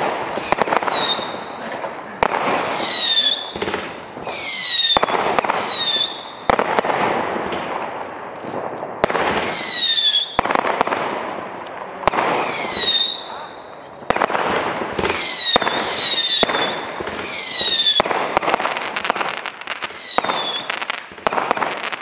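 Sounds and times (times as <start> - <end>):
firework falling whistles: 0.0 - 1.6, 2.3 - 6.8, 9.2 - 10.6, 12.3 - 13.6, 14.8 - 18.1, 19.0 - 21.7
crackling hiss: 0.0 - 22.0
firework bangs: 0.0 - 22.0.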